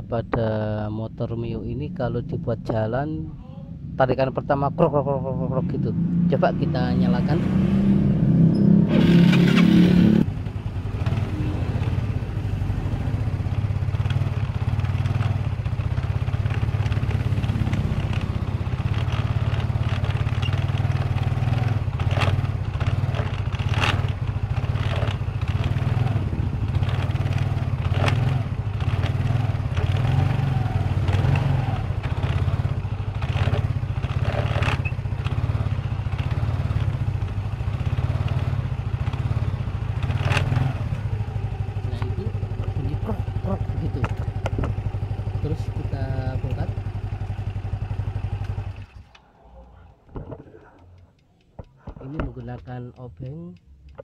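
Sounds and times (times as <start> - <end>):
scooter engine idling: 10.3 - 30.0, 30.9 - 40.1, 40.7 - 54.0.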